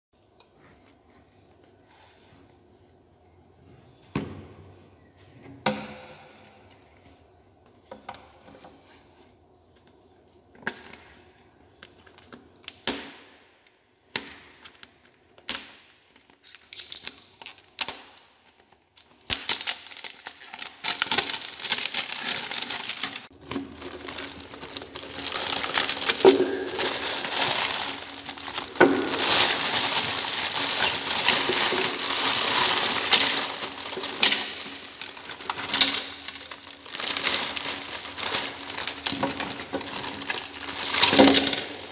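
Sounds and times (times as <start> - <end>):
plastic wrapper crinkling: 16.1 - 41.9.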